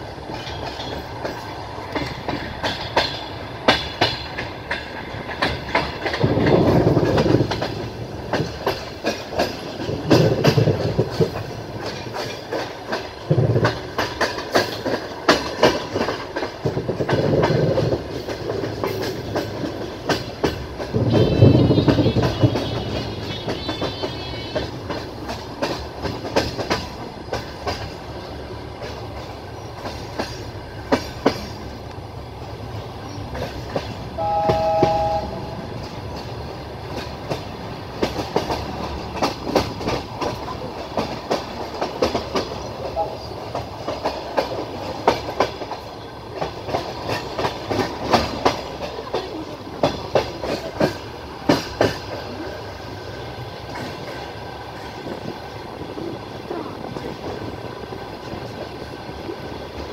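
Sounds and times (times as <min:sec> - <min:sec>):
train rolling rumble: 0:00.0 - 0:59.9
train wheels clattering: 0:00.0 - 0:59.9
two-tone train horn: 0:20.9 - 0:25.0, 0:34.2 - 0:35.8.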